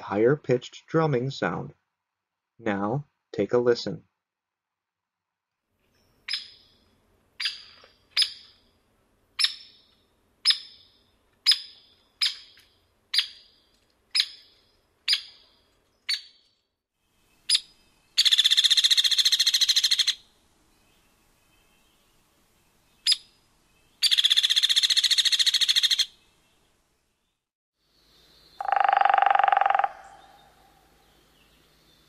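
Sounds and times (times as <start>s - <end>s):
woodpecker rattle call: 6.3s - 6.8s, 7.4s - 8.6s, 9.4s - 15.4s, 17.5s - 20.2s, 23.0s - 23.3s, 24.0s - 26.2s, 28.6s - 30.8s
woodpecker sharp peek calls: 6.3s - 6.8s, 7.4s - 8.6s, 9.4s - 15.4s, 17.5s - 20.2s, 23.0s - 23.3s, 24.0s - 26.2s, 28.6s - 30.8s.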